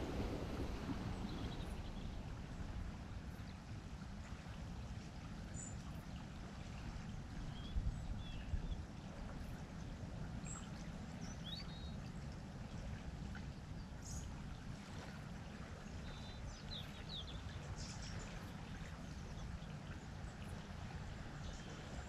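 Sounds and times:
steady low rumble: 0.0 - 5.0.

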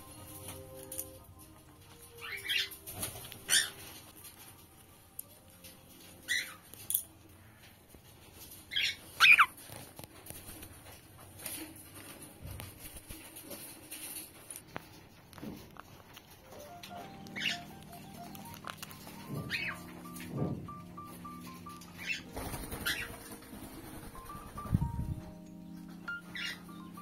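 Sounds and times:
faint background music: 0.0 - 27.0
cockatiels chirping: 2.2 - 2.8, 8.7 - 9.7, 17.2 - 20.5, 21.9 - 23.2, 26.1 - 27.0.

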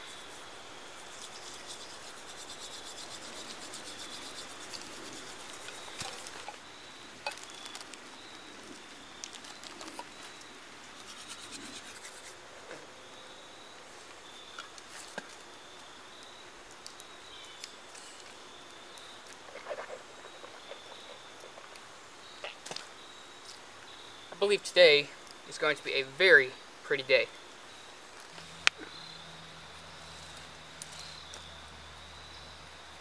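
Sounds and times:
toothbrush scrubbing teeth: 1.2 - 5.9
small clicks and rustles: 7.2 - 10.5.

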